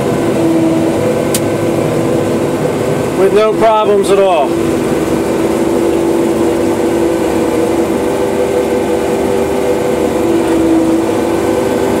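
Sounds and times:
combine harvester engine drone: 0.0s - 12.0s.

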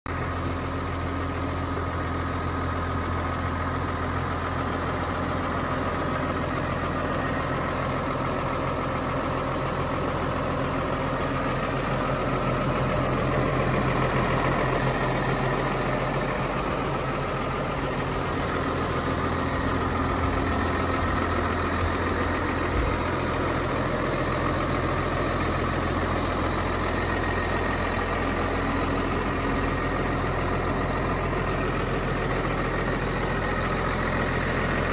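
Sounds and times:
tractor diesel engine idling: 0.1s - 34.9s.

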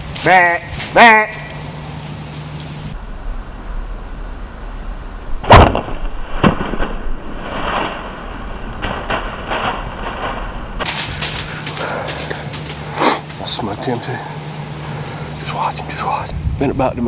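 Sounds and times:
smaller crack: 5.4s - 13.4s
deer running through dry leaves: 8.8s - 13.5s.

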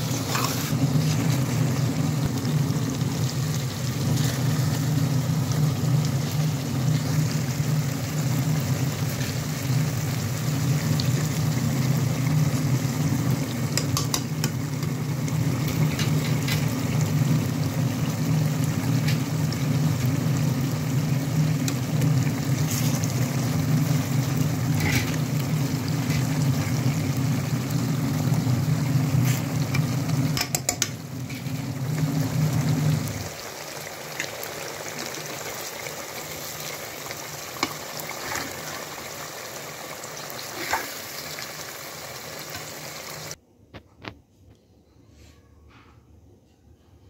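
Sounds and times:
metal spoon scraping a pot: 0.0s - 1.3s, 24.7s - 25.2s
fish sizzling in oil: 0.0s - 43.4s.

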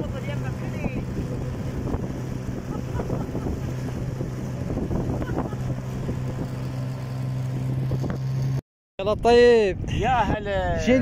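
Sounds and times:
wind buffeting microphone: 0.0s - 8.3s, 9.0s - 11.0s
boat motor humming: 0.0s - 8.6s
water splashing on hull: 0.0s - 8.6s.

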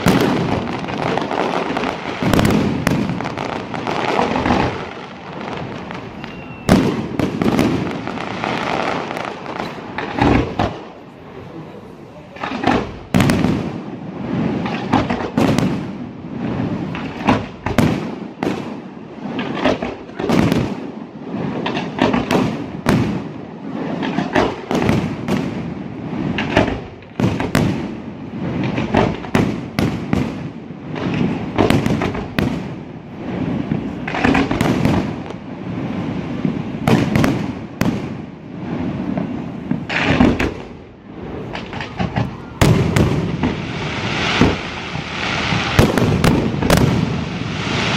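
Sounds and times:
fireworks bursting: 0.0s - 47.9s.

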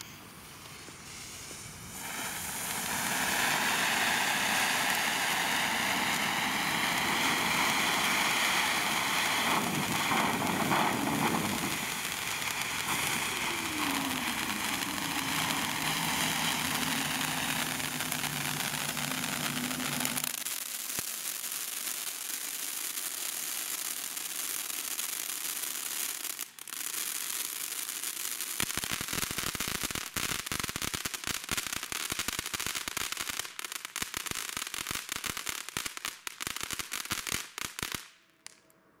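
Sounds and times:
firework fountain hissing: 0.0s - 37.8s
dense rapid crackling: 9.3s - 20.4s.

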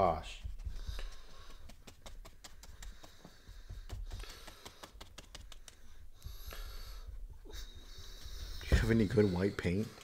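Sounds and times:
paintbrushes tapping on canvas: 0.3s - 5.9s.

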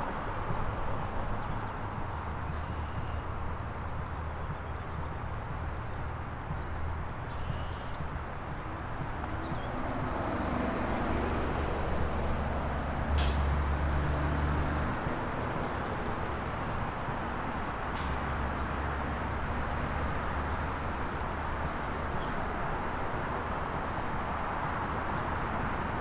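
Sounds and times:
vehicle engine running: 0.0s - 21.9s
bird chirp: 1.2s - 10.1s, 22.1s - 22.4s.

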